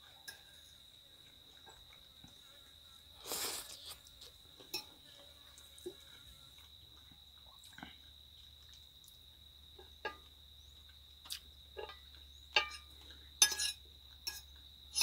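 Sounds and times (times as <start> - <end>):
fork scraping against a plate: 13.4 - 14.4.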